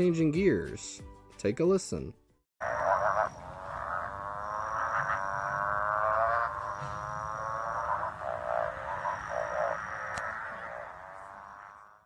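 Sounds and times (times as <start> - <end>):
frog buzzy mating call: 2.6 - 12.0.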